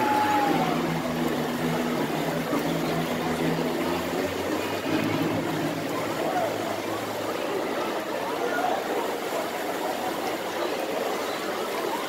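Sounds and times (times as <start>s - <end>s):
indistinct voices: 0.0s - 9.1s
water noise: 0.0s - 12.0s.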